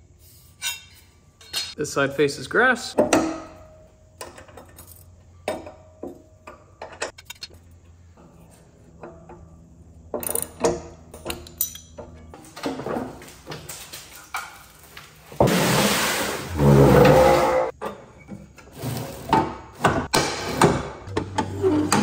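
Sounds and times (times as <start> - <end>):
metallic clinks of wrench on blade: 11.2 - 12.0.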